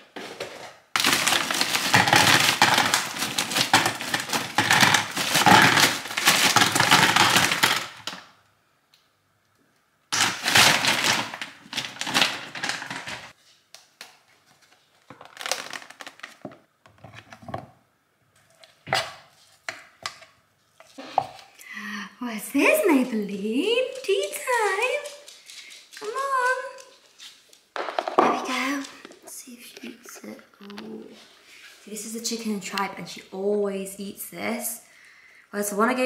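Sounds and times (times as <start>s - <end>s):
plastic pouch crinkling: 1.0s - 8.2s, 10.2s - 13.3s, 14.4s - 16.6s.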